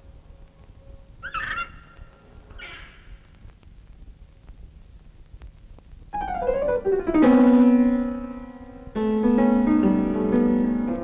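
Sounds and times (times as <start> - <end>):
piano music: 6.2 - 11.0.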